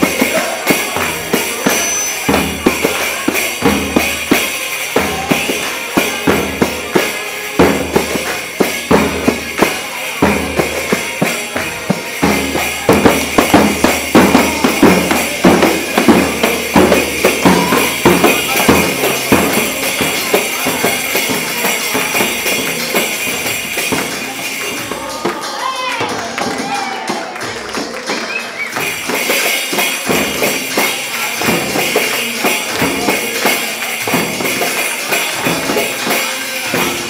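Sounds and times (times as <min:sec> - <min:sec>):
jingling frame drum: 0:00.0 - 0:37.0
bass drum beat: 0:07.6 - 0:27.6.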